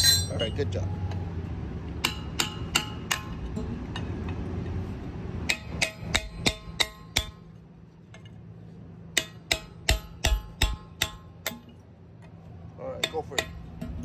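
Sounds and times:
hammer striking steel chisel: 2.0s - 3.4s, 5.5s - 7.4s, 9.2s - 11.8s, 13.0s - 14.0s.

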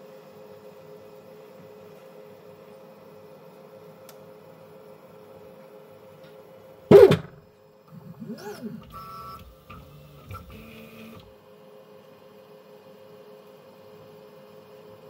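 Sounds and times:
printer humming: 6.9s - 11.6s.

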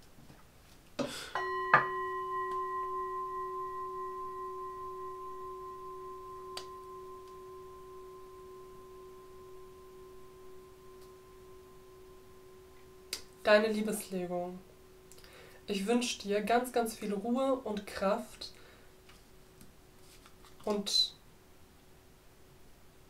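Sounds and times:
singing bowl ringing: 1.4s - 15.7s.

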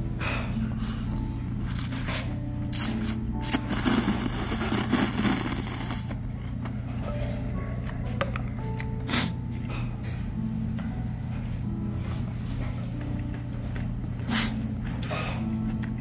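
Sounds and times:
person slurping noodles: 3.4s - 6.2s.

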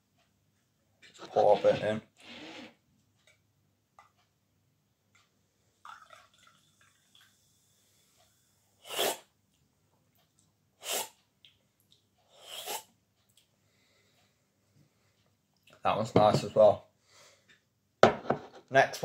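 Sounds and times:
slurping sips from a can: 8.8s - 9.3s, 10.8s - 11.2s, 12.3s - 12.9s.

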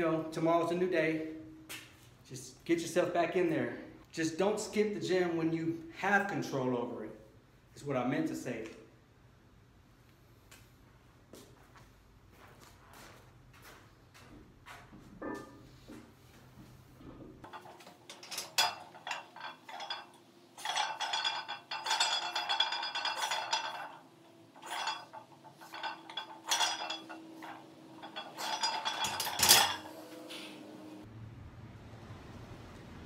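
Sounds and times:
weight plates clinking and rattling: 17.4s - 31.0s
barbell clanging onto rack: 17.5s - 30.0s.

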